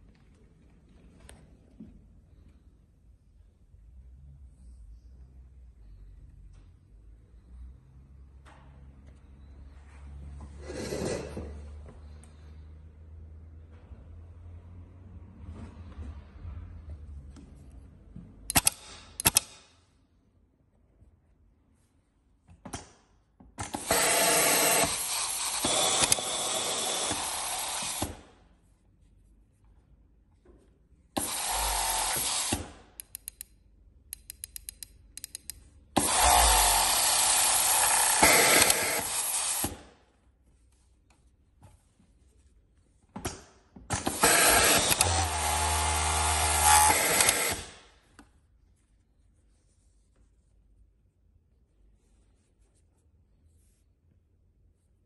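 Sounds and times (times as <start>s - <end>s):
short clicks: 18.5s - 19.7s, 33.0s - 35.7s
overlock sewing machine running: 44.0s - 47.7s.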